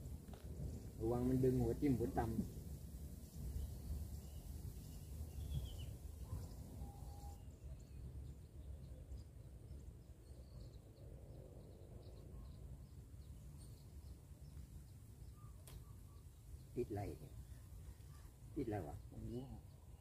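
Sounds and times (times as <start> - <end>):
low steady rumble: 0.0 - 10.2
faint bird chirps: 3.2 - 20.0.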